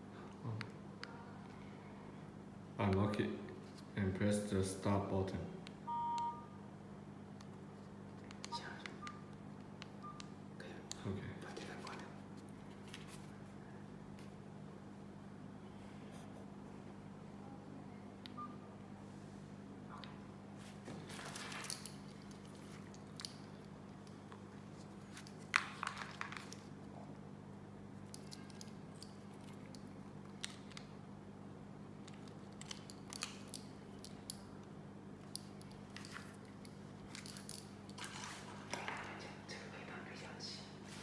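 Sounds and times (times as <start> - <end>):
steady low hum: 0.0 - 25.6.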